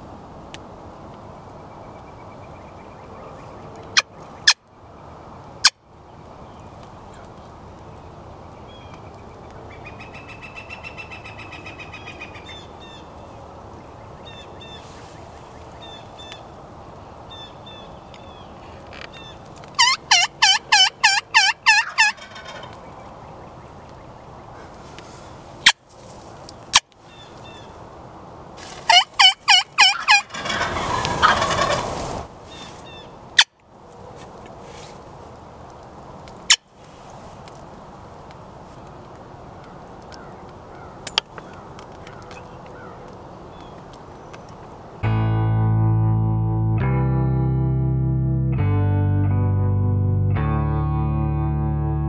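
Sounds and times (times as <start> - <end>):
wild turkey calling: 9.7 - 13.2, 19.1 - 23.6, 28.9 - 33.5.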